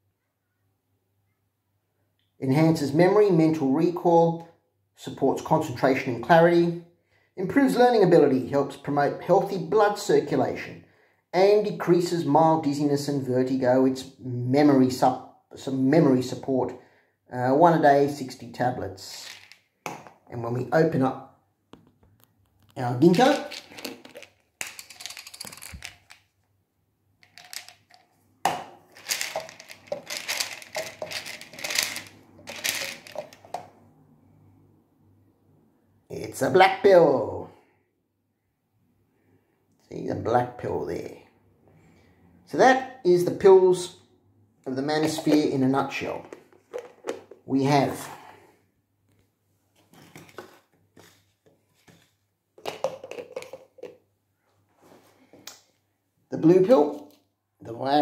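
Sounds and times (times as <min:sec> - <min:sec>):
pill packaging taps and rustles: 0:21.7 - 0:26.2, 0:27.2 - 0:33.6, 0:51.9 - 0:54.0
plastic bottle crinkling and scraping: 0:22.0 - 0:26.2, 0:27.2 - 0:33.6, 0:46.2 - 0:48.3, 0:49.8 - 0:54.0.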